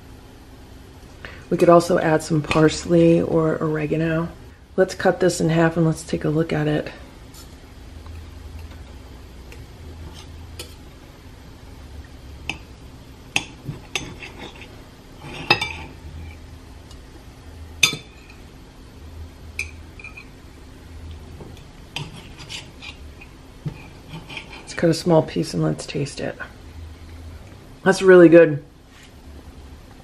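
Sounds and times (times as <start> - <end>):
cutlery clinking and scraping plate: 13.4 - 16.4, 19.6 - 20.3, 22.0 - 24.8.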